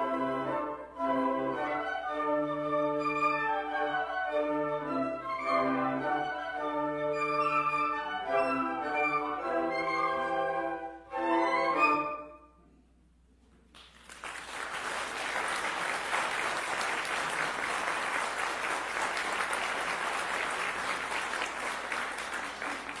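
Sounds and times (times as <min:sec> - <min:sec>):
audience applauding: 0:13.7 - 0:23.0.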